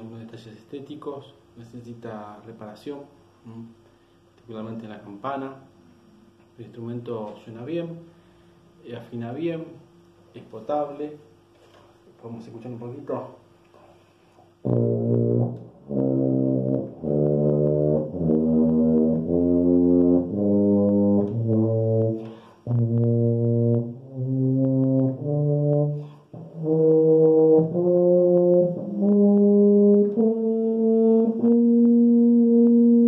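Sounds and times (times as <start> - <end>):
tuba playing low notes: 14.6 - 33.0
player breathing: 22.2 - 22.7.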